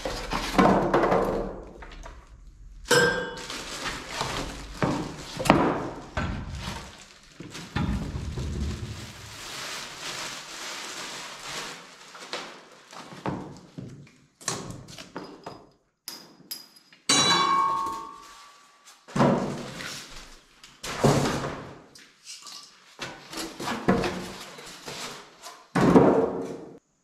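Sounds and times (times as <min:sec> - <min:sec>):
cardboard and styrofoam scraping: 0:00.0 - 0:01.7, 0:03.4 - 0:13.5, 0:23.2 - 0:25.7
styrofoam squeaking: 0:03.4 - 0:13.2.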